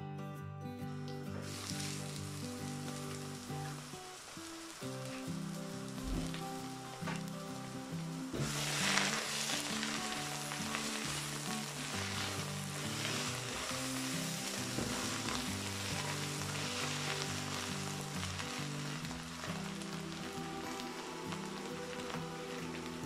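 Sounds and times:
soft background music: 0:00.0 - 0:23.0
sauerkraut sizzling in oil: 0:01.3 - 0:23.0.

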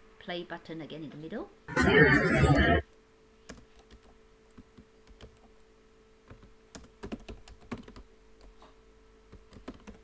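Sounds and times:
typing on computer keyboard: 0:06.3 - 0:08.0, 0:09.3 - 0:10.0.

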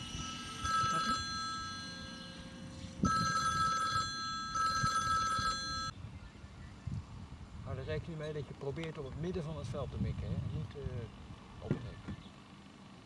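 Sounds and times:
electronic warbling ring: 0:00.0 - 0:05.9.

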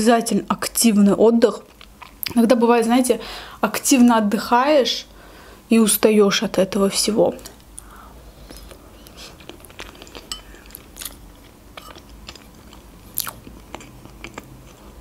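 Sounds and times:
chewing with wet mouth clicks: 0:01.6 - 0:02.4, 0:08.5 - 0:14.9.

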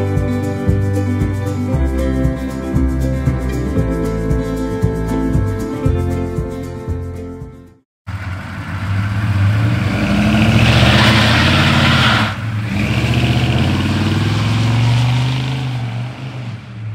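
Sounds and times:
diesel pickup truck driving past: 0:08.1 - 0:16.9.

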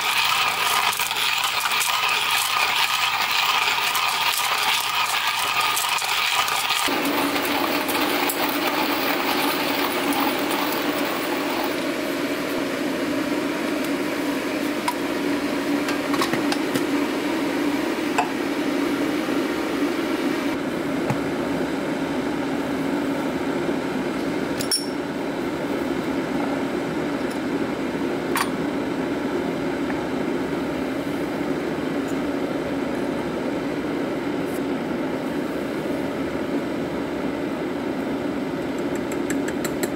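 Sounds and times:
hand coffee grinder grinding: 0:00.0 - 0:11.8.

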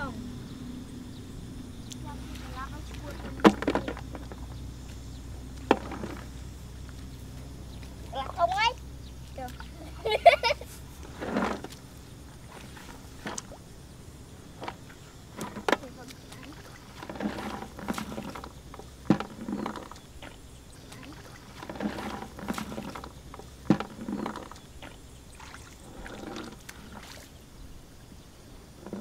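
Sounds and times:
children talking: 0:00.0 - 0:00.5, 0:01.9 - 0:04.6, 0:08.0 - 0:10.8, 0:15.6 - 0:16.7, 0:20.8 - 0:21.4.

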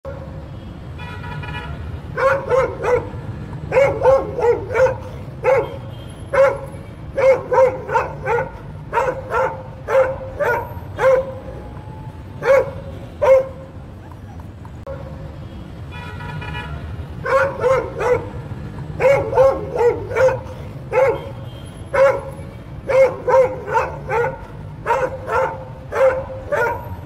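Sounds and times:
traffic rumble: 0:00.0 - 0:27.0
car horn: 0:00.5 - 0:03.0, 0:03.7 - 0:08.4, 0:15.4 - 0:17.4, 0:20.2 - 0:24.2
dog barking: 0:02.1 - 0:11.6, 0:12.4 - 0:13.7, 0:17.2 - 0:27.0.

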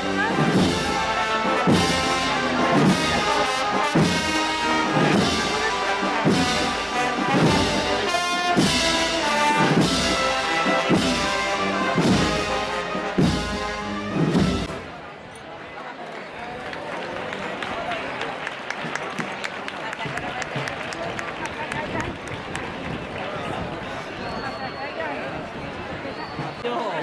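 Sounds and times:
brass band playing slow march: 0:00.0 - 0:15.1.

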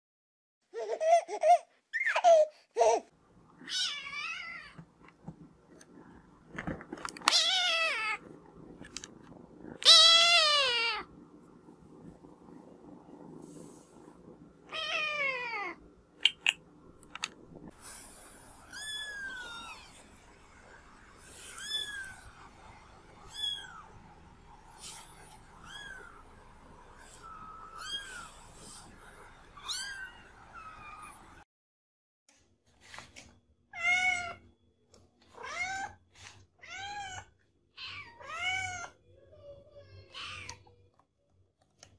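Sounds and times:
young cat meowing: 0:09.8 - 0:11.0.

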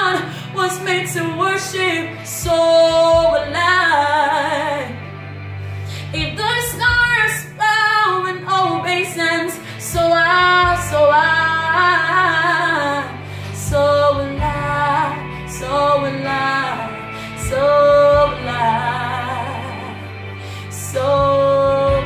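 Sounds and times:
woman singing: 0:00.0 - 0:05.1, 0:05.9 - 0:22.0.

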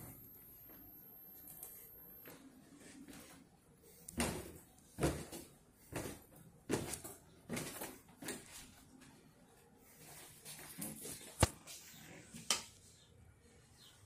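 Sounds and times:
footsteps going down stairs: 0:04.1 - 0:09.2.

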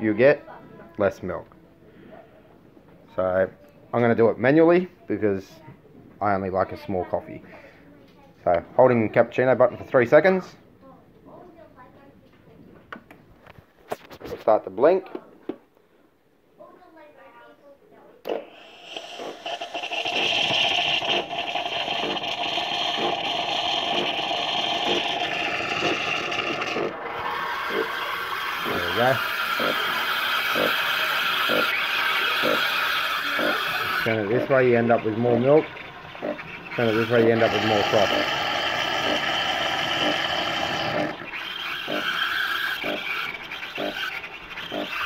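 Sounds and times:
soft pulsing of frother: 0:18.3 - 0:45.0
steam hiss frothing milk: 0:18.3 - 0:45.0.

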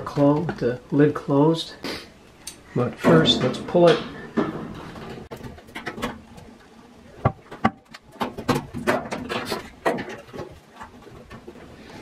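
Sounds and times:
scraping and rattling: 0:03.0 - 0:12.0
plastic and metal knocks: 0:07.2 - 0:11.5.

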